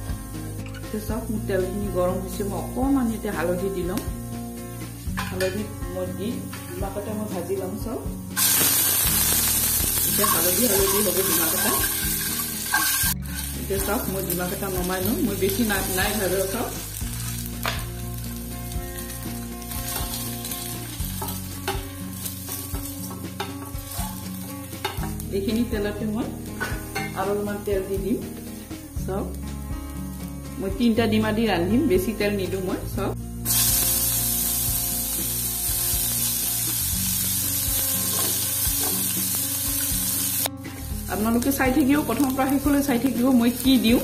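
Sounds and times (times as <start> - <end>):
eggs sizzling in hot oil: 7.7 - 32.0, 33.4 - 44.0.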